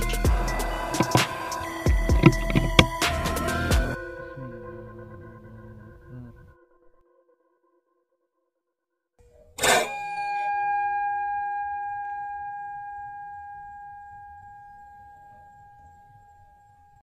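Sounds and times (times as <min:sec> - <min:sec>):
bell-like metallic strike ringing: 0:09.6 - 0:16.5.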